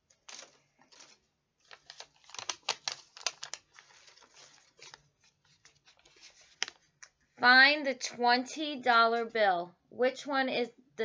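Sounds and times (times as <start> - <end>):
paper bills rustling: 0.0 - 7.1.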